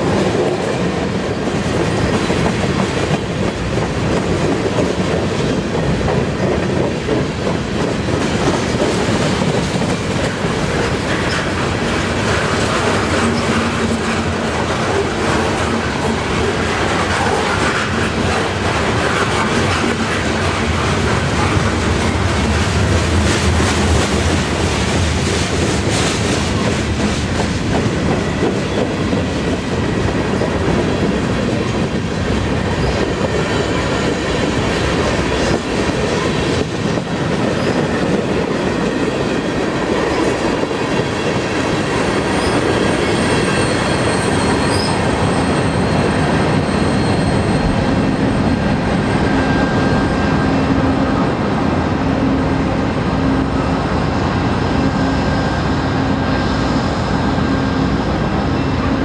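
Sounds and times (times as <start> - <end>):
train wheels rumbling on rails: 0.0 - 59.0
wheel squeals: 42.1 - 50.4.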